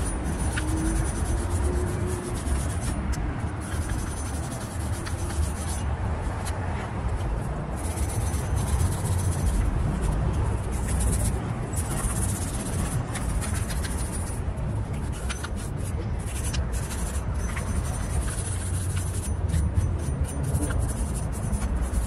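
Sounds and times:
wire brush scrubbing steel: 0.0s - 6.6s, 7.2s - 22.0s.

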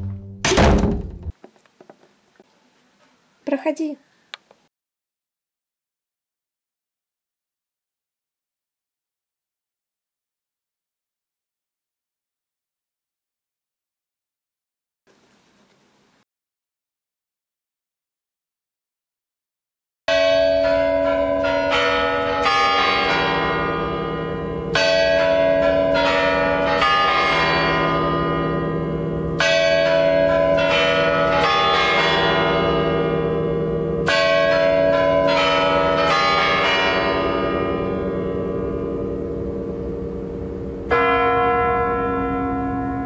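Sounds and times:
tower bells chiming melody: 20.1s - 43.0s.

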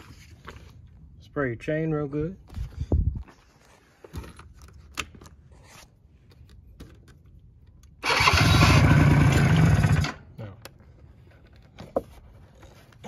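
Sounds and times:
two-stroke engine starting: 8.0s - 10.3s.

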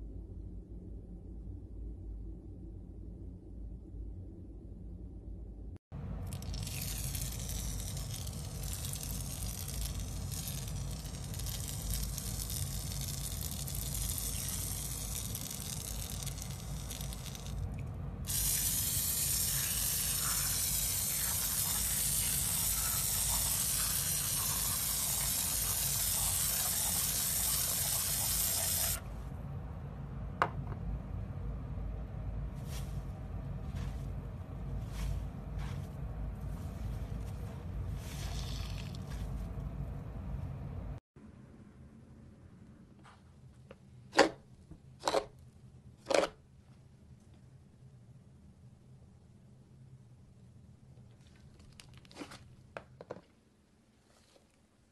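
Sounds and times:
spray-like hiss: 18.3s - 29.0s.

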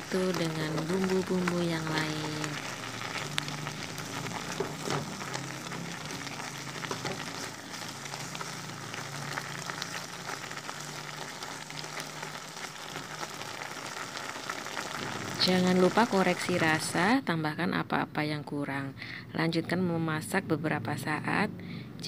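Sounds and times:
stew bubbling and sizzling: 0.0s - 17.2s.

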